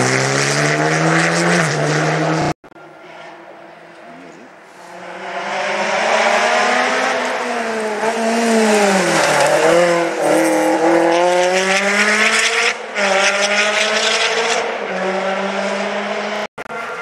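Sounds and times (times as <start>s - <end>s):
rally car engine passing: 0.0s - 17.0s.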